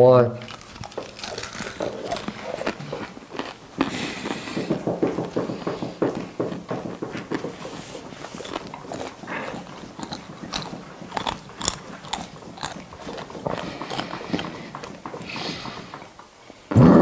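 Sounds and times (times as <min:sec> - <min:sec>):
crunchy chewing: 0:00.3 - 0:16.2.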